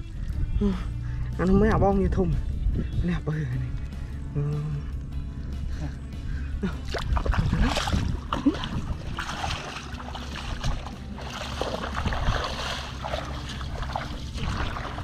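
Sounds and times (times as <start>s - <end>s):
wind rumble on microphone: 0.0s - 15.0s
feet splashing through water and mud: 6.6s - 15.0s.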